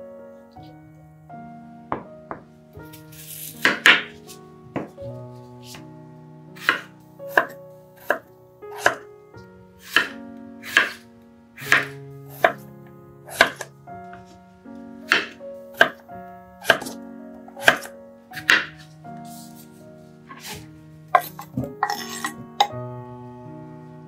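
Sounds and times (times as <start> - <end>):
soft background music: 0.0 - 24.0
knife chopping on wooden board: 3.3 - 4.1, 6.6 - 9.0, 9.8 - 11.0, 11.6 - 12.6, 13.3 - 13.7, 15.1 - 16.0, 16.6 - 17.0, 17.6 - 18.8, 20.3 - 20.6.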